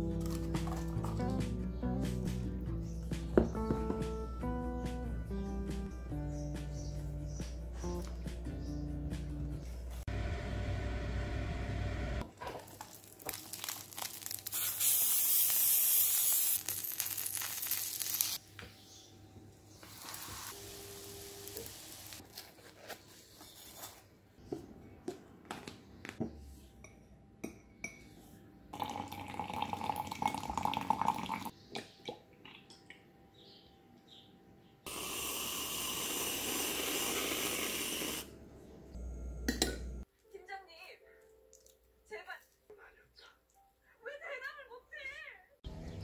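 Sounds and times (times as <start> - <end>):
liquid pouring into a glass: 28.8 - 31.5
loud hiss: 34.9 - 38.3.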